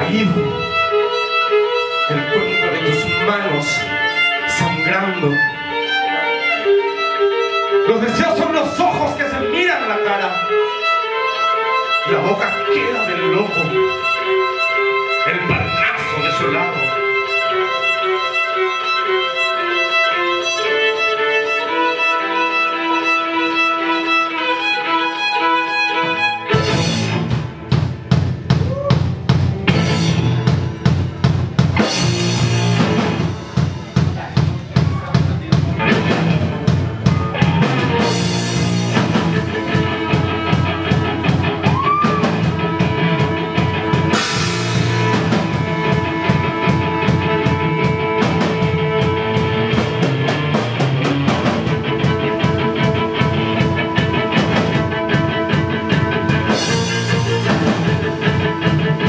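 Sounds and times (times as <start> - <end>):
electric guitar: 0.0 - 59.0
violin: 0.0 - 59.0
drum kit playing: 25.8 - 59.0.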